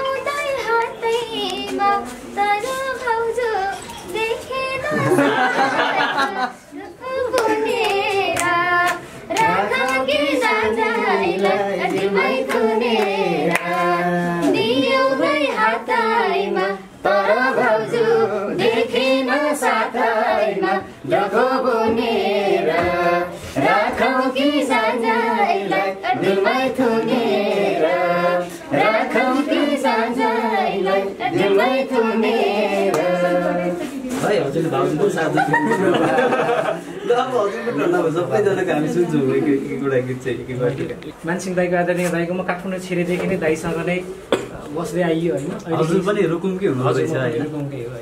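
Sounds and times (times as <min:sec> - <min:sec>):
hand claps: 0:07.3 - 0:10.6, 0:11.4 - 0:14.0.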